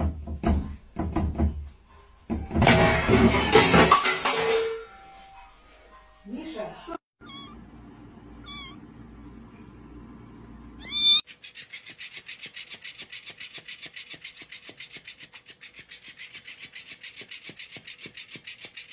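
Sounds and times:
kitten meowing: 0:07.2 - 0:07.6, 0:08.4 - 0:08.8, 0:10.8 - 0:11.3
fast rasping of plush toy: 0:11.2 - 0:18.9.

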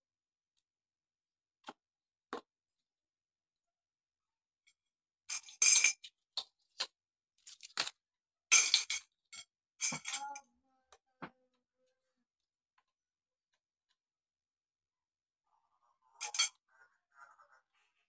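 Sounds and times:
metal tubes clattering: 0:16.2 - 0:16.6.

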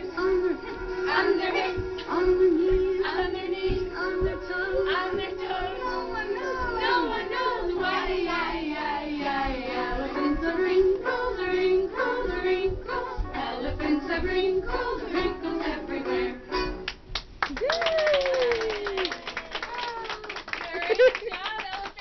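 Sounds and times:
children singing a song: 0:00.0 - 0:16.8.

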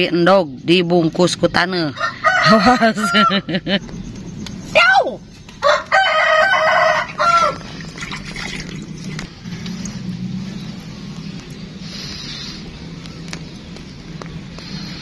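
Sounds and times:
rooster crowing: 0:01.7 - 0:03.6, 0:05.6 - 0:07.9.

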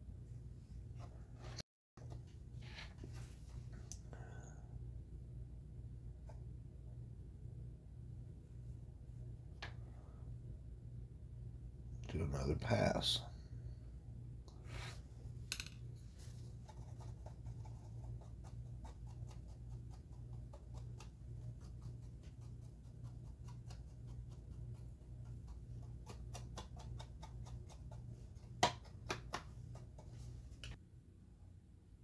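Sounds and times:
paintbrush dabbing ticks: 0:16.6 - 0:30.3.

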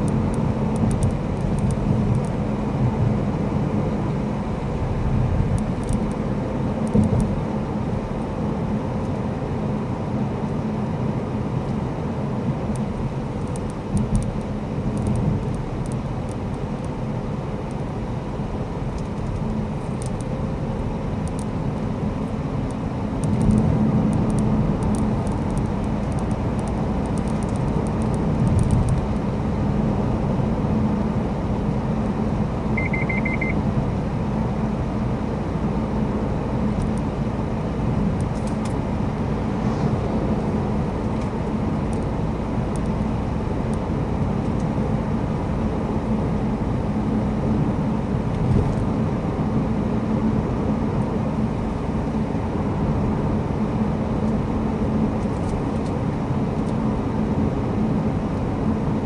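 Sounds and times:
car engine and road noise: 0:00.0 - 0:59.0
short beep: 0:32.8 - 0:33.6.

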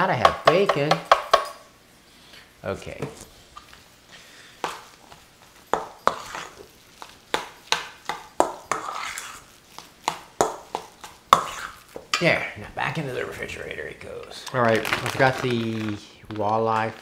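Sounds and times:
metal spoon scraping metal bowl: 0:06.0 - 0:06.6, 0:08.4 - 0:09.5, 0:11.3 - 0:11.8.

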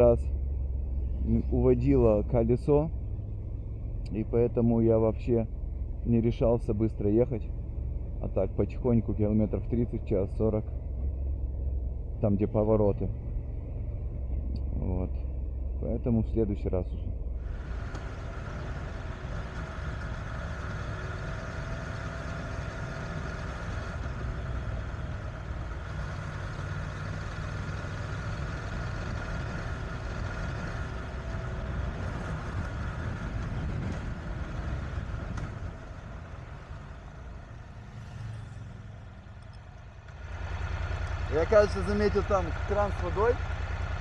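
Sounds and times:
motorcycle engine running: 0:17.1 - 0:44.0
wind noise: 0:32.0 - 0:35.8.

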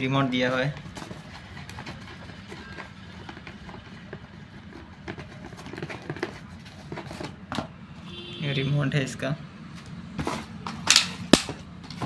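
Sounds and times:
packaging clicks and rustles: 0:00.5 - 0:07.7.

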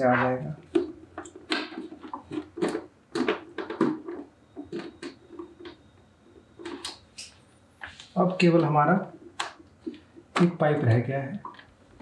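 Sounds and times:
plastic tubing clicks and rustles: 0:00.7 - 0:05.8.

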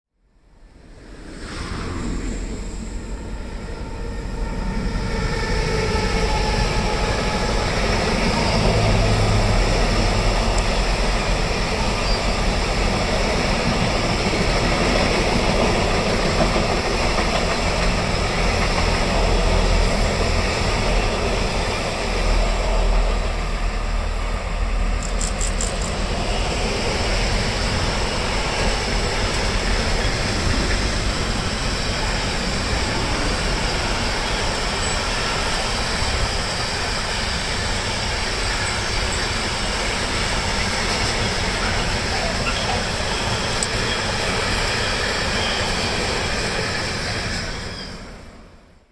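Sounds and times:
train wheels rumbling on rails: 0:00.7 - 0:48.5.

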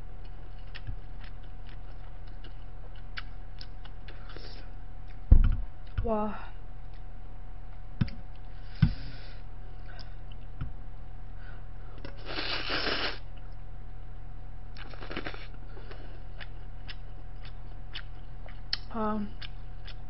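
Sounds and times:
steady low hum: 0:00.0 - 0:20.0
slurping noodles: 0:12.1 - 0:13.2.

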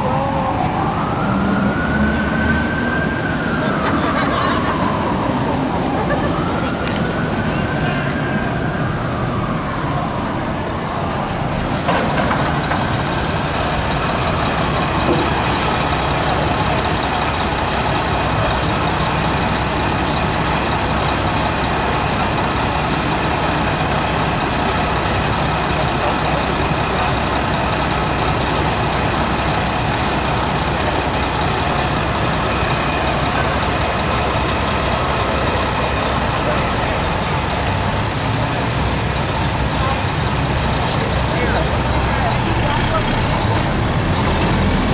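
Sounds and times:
busy street traffic: 0:00.0 - 0:44.9.

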